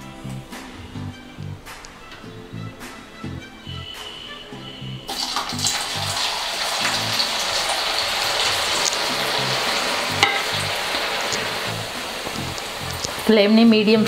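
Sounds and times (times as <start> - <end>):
potatoes frying in oil: 5.1 - 14.0.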